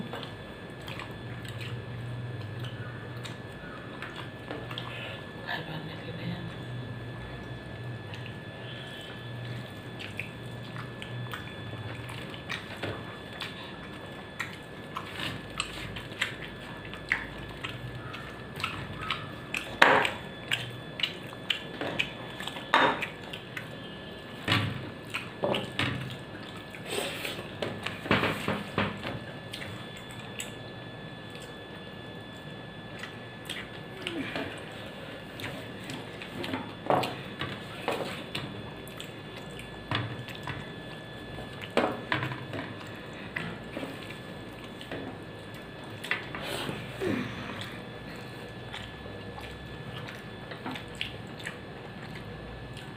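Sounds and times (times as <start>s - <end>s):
faint steady hum: 0.0s - 52.9s
mouth smacking and chewing: 9.4s - 23.8s, 47.6s - 52.9s.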